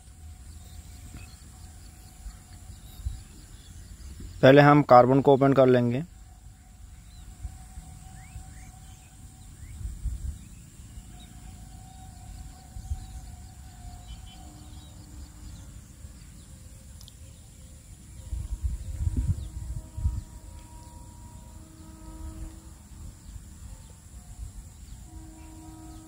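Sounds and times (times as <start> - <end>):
faint birds chirping: 0.0 - 26.0.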